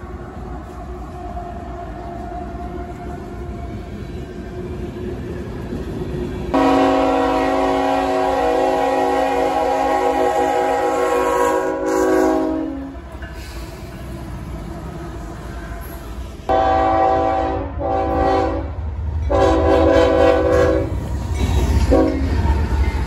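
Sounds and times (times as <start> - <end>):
train passing rumble: 0.0 - 23.0
locomotive air horn: 6.5 - 13.0, 16.5 - 21.0, 21.9 - 22.3.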